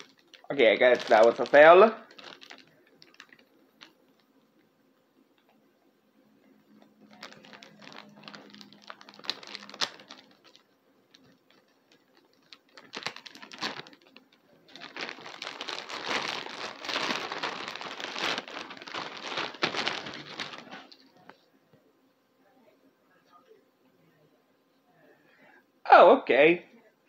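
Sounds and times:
plastic bag crinkling: 0.0s - 4.6s, 6.6s - 21.4s.

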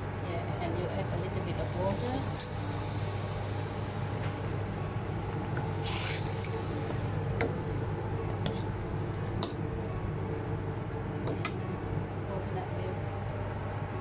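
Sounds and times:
steady low hum: 0.0s - 14.0s
ladle scraping in a wok: 5.7s - 7.8s.

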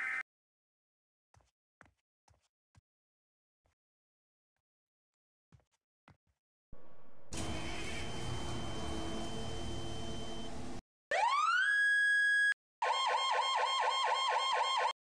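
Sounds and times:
electronic siren wailing and yelping: 11.1s - 15.0s.

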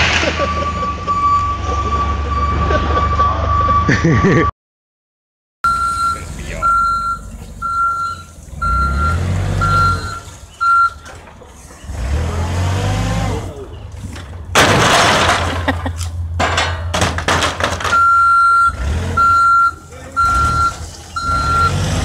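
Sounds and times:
wooden pallets crashing onto asphalt: 0.0s - 0.5s, 14.0s - 18.5s
forklift reverse alarm beeping: 0.4s - 4.5s, 5.6s - 11.1s, 17.9s - 21.8s
forklift engine running: 5.7s - 14.7s, 15.8s - 22.0s.

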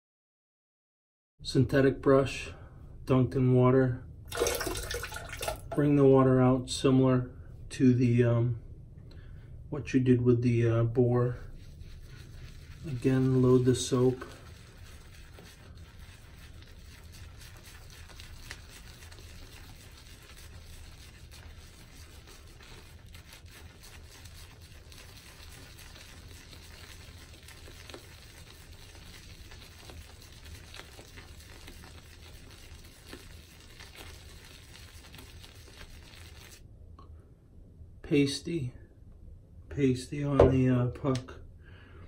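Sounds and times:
brush swirling on soap: 4.3s - 6.2s, 10.5s - 36.6s.

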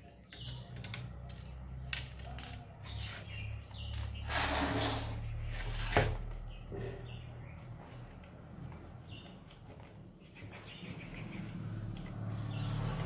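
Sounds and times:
short scrape: 4.2s - 6.1s.

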